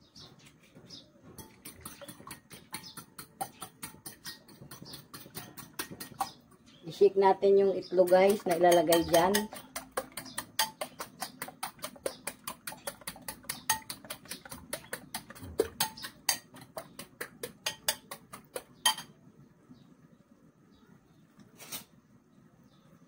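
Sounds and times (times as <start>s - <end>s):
whisk clicking against bowl: 1.4s - 6.4s, 8.0s - 19.0s.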